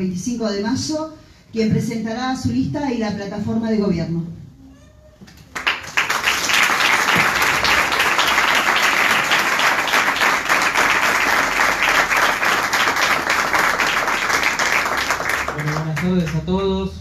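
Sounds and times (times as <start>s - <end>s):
crowd applauding: 5.5s - 16.5s.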